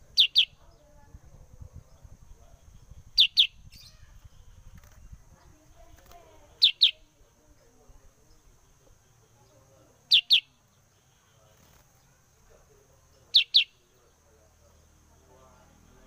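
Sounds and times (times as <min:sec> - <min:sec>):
bulbul calling: 0:00.0 - 0:14.8.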